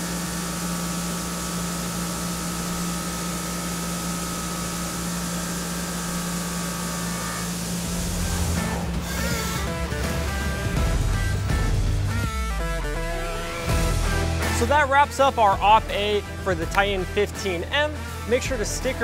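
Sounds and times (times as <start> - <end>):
spindle and cutter whine: 0.0 - 19.0
coolant spray hissing: 0.1 - 10.9
low rumble: 7.8 - 14.4.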